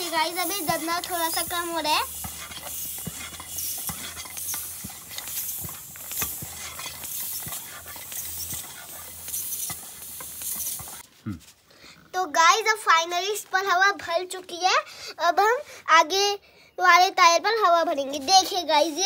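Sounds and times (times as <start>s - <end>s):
bicycle pump strokes hissing: 0.0s - 11.0s.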